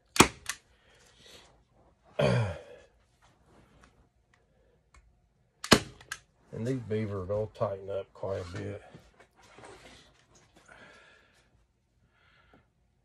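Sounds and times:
staple gun snap: 0:00.1 - 0:00.6, 0:05.6 - 0:06.2
man sighing: 0:02.2 - 0:02.9.

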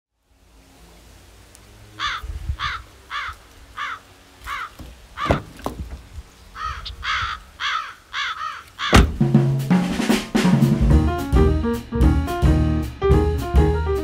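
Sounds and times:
crow cawing: 0:02.0 - 0:05.6, 0:06.5 - 0:09.2
low thump: 0:04.8 - 0:06.1, 0:08.9 - 0:09.6, 0:10.4 - 0:11.4.

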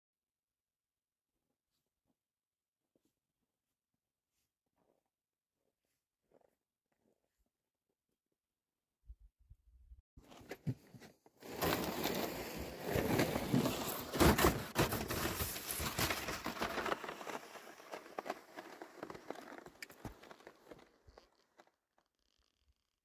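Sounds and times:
sled scraping over snow: 0:11.4 - 0:21.7.

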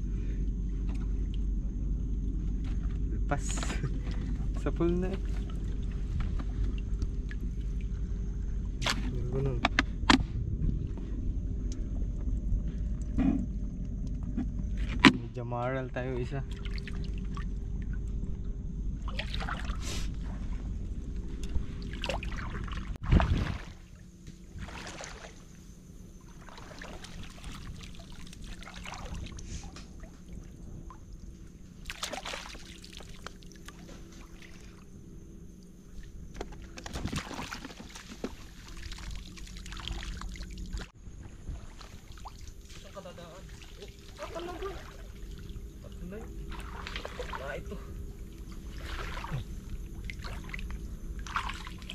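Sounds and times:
steady low rumble: 0:00.0 - 0:31.9, 0:44.2 - 0:51.9
splashing in shallow water: 0:16.4 - 0:18.0, 0:19.0 - 0:51.9.

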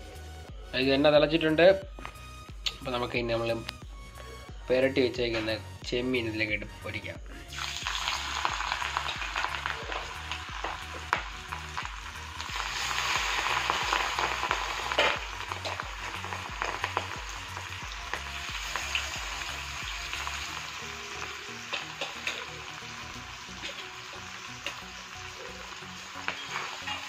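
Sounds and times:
oil sizzling and bubbling: 0:07.5 - 0:27.0.

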